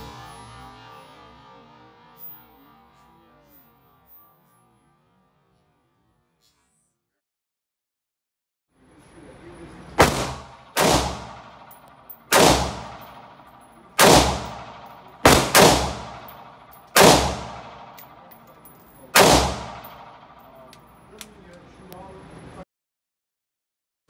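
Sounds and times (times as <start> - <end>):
rifle shots echoing indoors: 10.0 - 18.3, 19.2 - 20.6.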